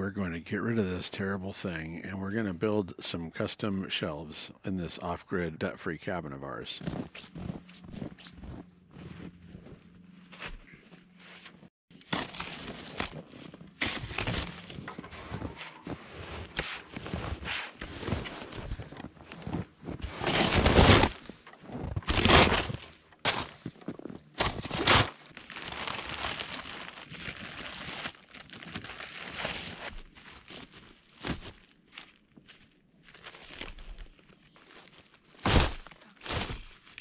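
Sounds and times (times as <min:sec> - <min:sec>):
footsteps crunching in snow: 0:06.5 - 0:37.0
snow rake scraping snow: 0:11.4 - 0:23.7.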